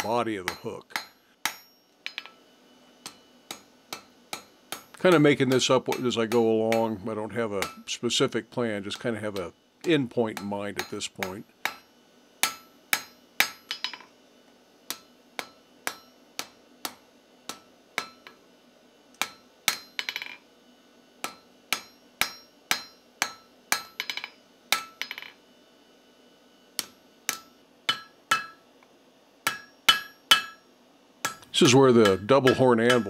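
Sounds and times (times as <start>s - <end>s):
hammer striking steel on anvil: 0.0s - 2.4s, 3.0s - 7.0s, 7.6s - 7.9s, 10.4s - 14.1s, 14.9s - 18.4s, 19.2s - 20.4s, 21.2s - 25.4s, 26.8s - 28.6s, 29.4s - 33.0s.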